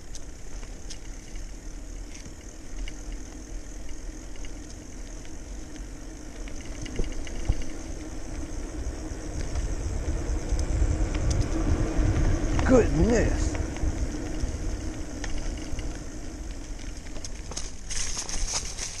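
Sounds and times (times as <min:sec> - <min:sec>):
bike tyre rumble on pavement: 0:00.0 - 0:19.0
wind buffeting microphone: 0:06.6 - 0:18.8.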